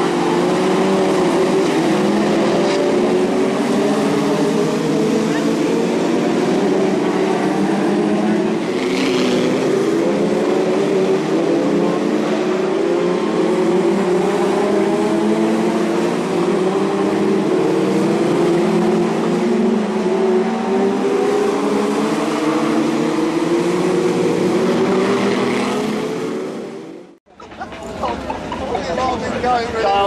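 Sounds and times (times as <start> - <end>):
racing car engines at high revs: 0.0 - 27.2.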